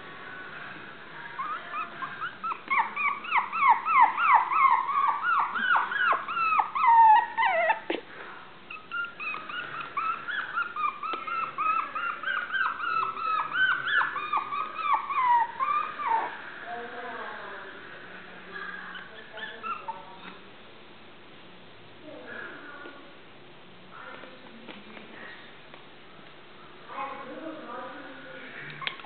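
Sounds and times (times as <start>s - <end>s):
puppies whining and yipping: 1.3s - 8.0s, 8.7s - 16.4s, 18.9s - 20.0s.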